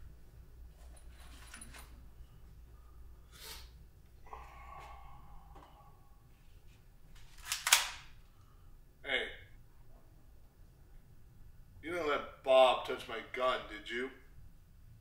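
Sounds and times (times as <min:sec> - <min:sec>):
breathy hiss: 0:02.7 - 0:06.2.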